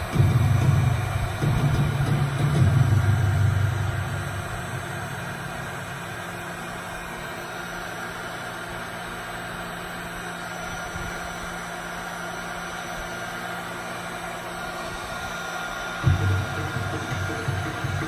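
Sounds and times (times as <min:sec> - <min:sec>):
low hum: 0:00.0 - 0:08.9
heat gun blowing: 0:00.0 - 0:18.0.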